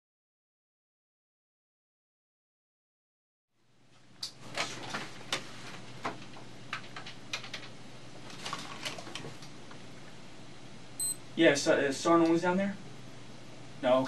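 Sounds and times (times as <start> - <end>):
low steady hum: 3.6 - 14.0.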